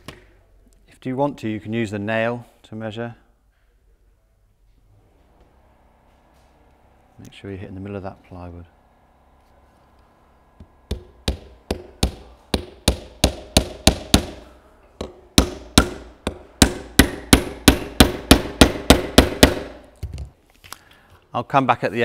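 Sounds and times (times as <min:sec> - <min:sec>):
hammer driving nail into wood: 0:10.9 - 0:19.8.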